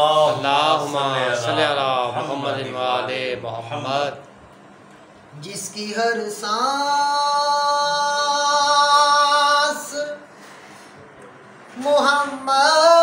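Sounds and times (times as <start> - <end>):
man singing unaccompanied: 5.3 - 10.3, 11.8 - 13.0.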